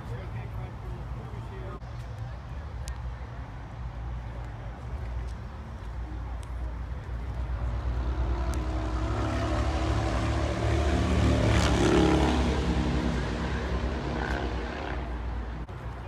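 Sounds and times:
car engine passing by: 7.8s - 15.6s.

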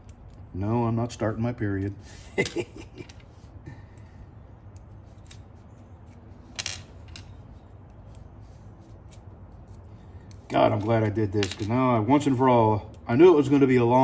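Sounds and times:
nuts clattering: 6.5s - 7.4s.

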